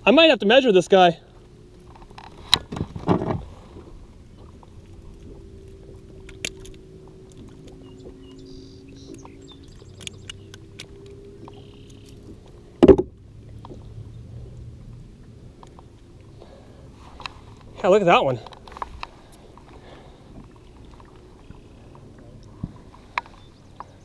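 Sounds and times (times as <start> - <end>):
loud thump: 12.8 - 13.2.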